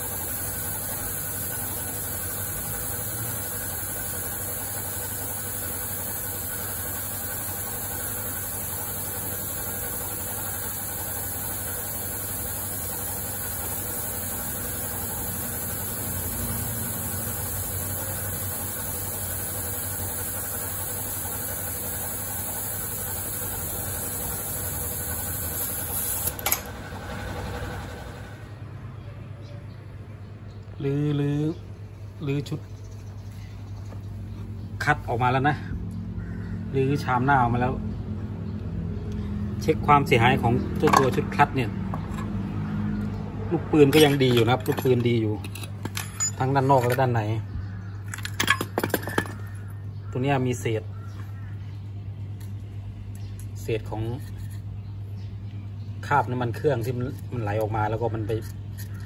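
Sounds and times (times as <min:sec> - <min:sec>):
machine running with hiss and hum: 0:00.0 - 0:28.6.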